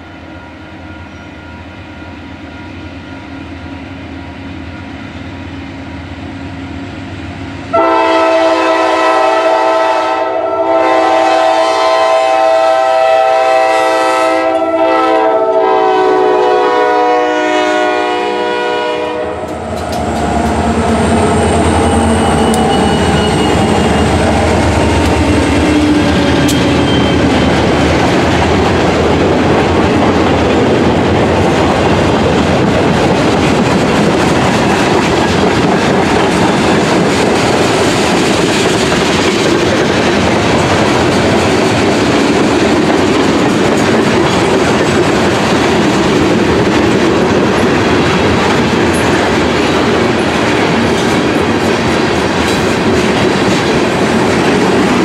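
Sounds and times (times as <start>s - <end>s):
diesel locomotives rumbling: 0.0s - 55.0s
locomotive horn: 7.7s - 20.1s, 20.7s - 27.6s
train wheels clattering: 19.4s - 55.0s.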